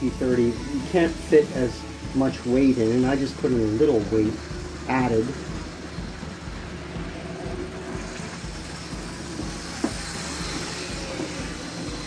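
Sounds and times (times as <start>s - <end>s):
model train motor whirring: 0.0s - 12.0s.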